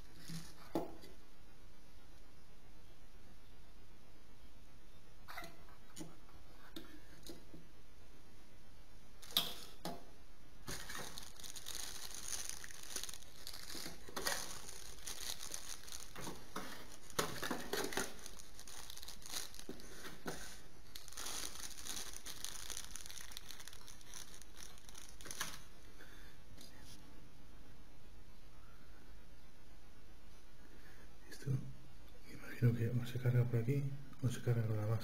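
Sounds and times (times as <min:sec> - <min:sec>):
plastic bags crinkling: 0:00.0 - 0:00.7, 0:09.2 - 0:09.9, 0:10.6 - 0:25.8.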